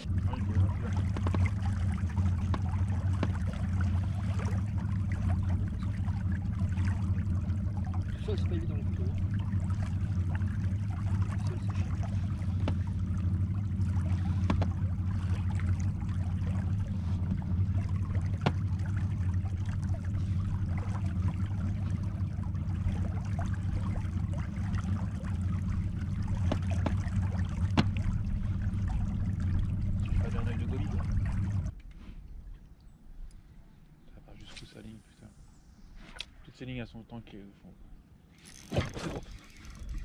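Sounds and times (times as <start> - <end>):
boat motor humming: 0.0 - 40.0
water trickling along hull: 0.0 - 40.0.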